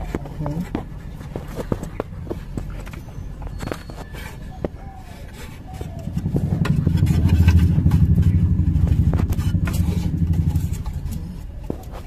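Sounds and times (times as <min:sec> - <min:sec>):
vehicle engine passing by: 0:06.0 - 0:11.5.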